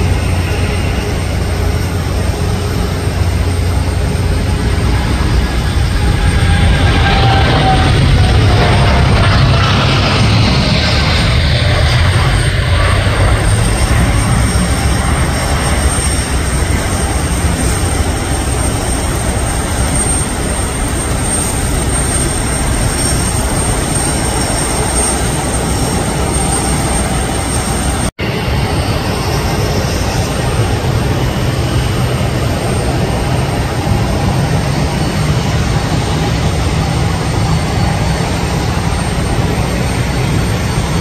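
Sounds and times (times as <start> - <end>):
jet engines at takeoff thrust: 0.0 - 41.0.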